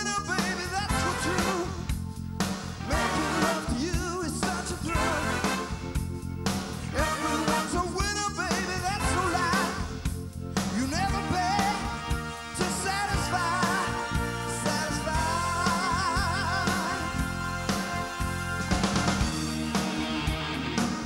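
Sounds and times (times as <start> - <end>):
man singing into a microphone: 0.0 - 1.8, 2.9 - 5.6, 6.9 - 10.0, 10.7 - 12.0, 12.6 - 18.0
live rock band playing: 0.0 - 21.0
electric guitar: 13.6 - 21.0.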